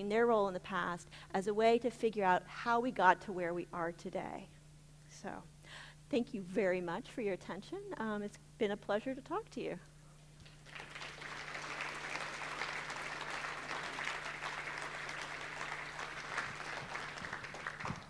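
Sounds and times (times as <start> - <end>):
audience applauding: 10.4 - 18.0.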